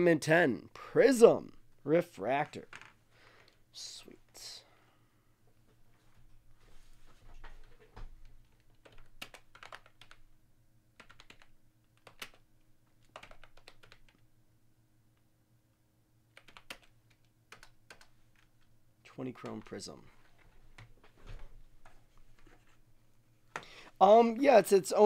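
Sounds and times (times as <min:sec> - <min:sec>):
faint keyboard typing: 0:07.3 - 0:10.3, 0:10.9 - 0:14.2, 0:16.3 - 0:22.8.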